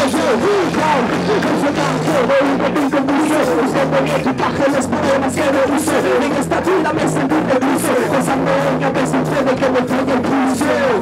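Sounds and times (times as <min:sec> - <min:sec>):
steady bass: 0:00.0 - 0:11.0.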